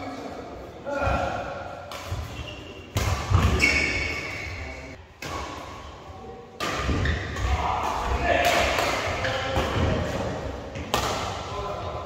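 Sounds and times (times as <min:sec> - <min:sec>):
racket hitting shuttlecock: 0:01.7 - 0:04.4, 0:05.2 - 0:05.8, 0:06.6 - 0:11.5.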